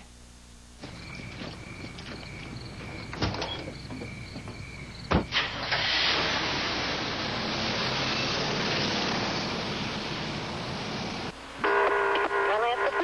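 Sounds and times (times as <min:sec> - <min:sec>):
vehicle door slamming: 0:00.8 - 0:06.2
truck driving off: 0:00.8 - 0:11.6.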